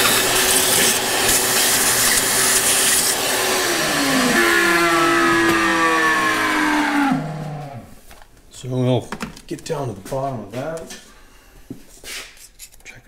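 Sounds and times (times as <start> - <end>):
vacuum sucking up metal chips: 0.0 - 7.9
shop vacuum running: 0.0 - 8.0.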